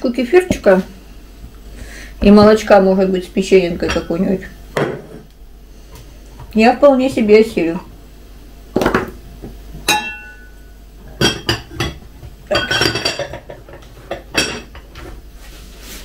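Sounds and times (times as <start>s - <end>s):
dishes and cutlery clinking: 3.8s - 5.2s, 9.9s - 10.5s, 11.1s - 15.0s.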